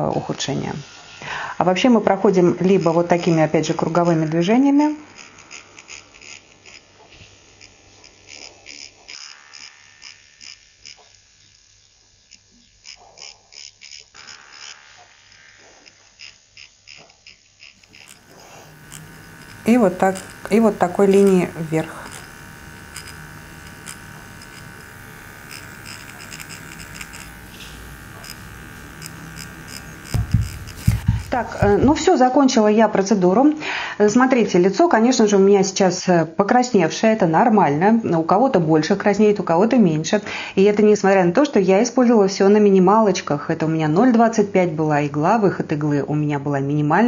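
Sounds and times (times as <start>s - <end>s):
microneedling pen buzzing: 0.0s - 32.4s.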